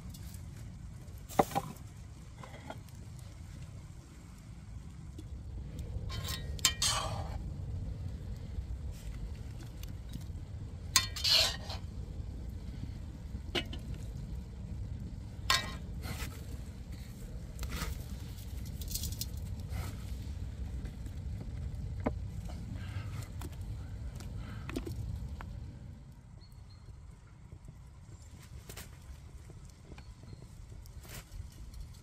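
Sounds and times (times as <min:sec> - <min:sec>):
steady low rumble: 0:00.0 - 0:32.0
metal tongs clinking on a pot: 0:06.1 - 0:07.3, 0:11.0 - 0:11.8, 0:15.5 - 0:15.8.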